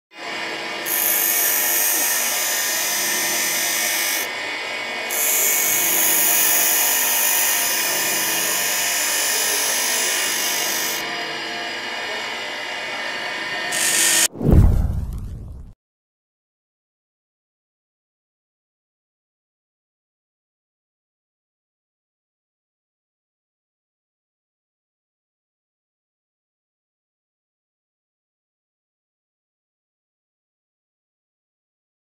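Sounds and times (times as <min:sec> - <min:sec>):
deep boom hit: 0:14.3 - 0:15.8.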